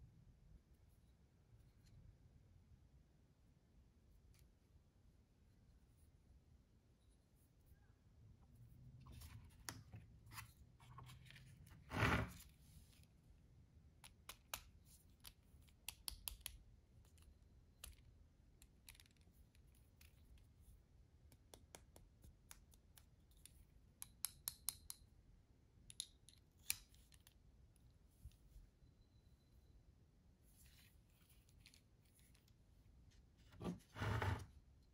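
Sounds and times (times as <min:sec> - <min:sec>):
screwdriver parts clicking and tapping: 0:23.3 - 0:25.0.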